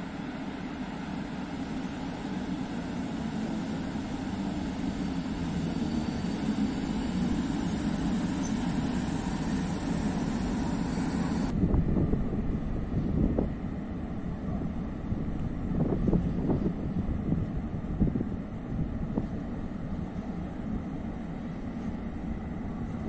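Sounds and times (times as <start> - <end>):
electric locomotive running: 0.0 - 13.9.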